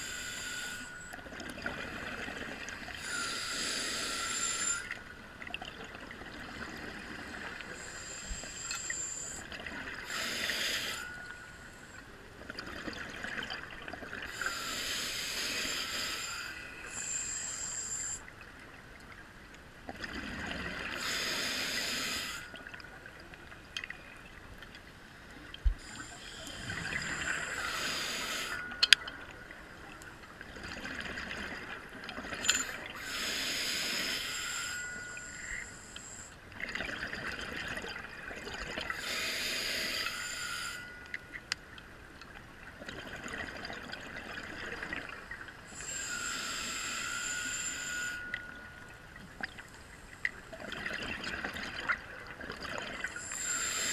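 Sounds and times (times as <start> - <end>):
scuba regulator inhale hissing: 0.0 - 1.1, 3.0 - 5.0, 7.2 - 11.9, 14.3 - 18.2, 21.0 - 22.5, 25.8 - 28.8, 32.6 - 36.4, 38.9 - 41.0, 45.7 - 48.8, 53.1 - 53.9.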